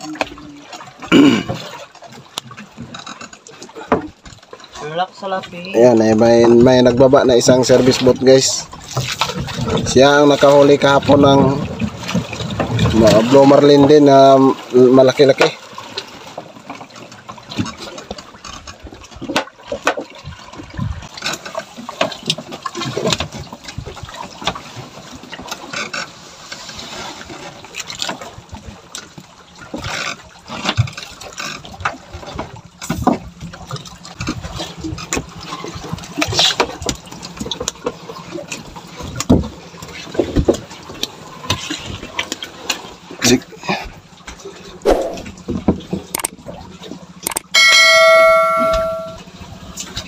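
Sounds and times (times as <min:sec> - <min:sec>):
water sloshing against hull: 0:00.0 - 0:50.0
knocks and thumps on boat deck: 0:08.8 - 0:14.0, 0:30.5 - 0:42.3, 0:45.2 - 0:46.7.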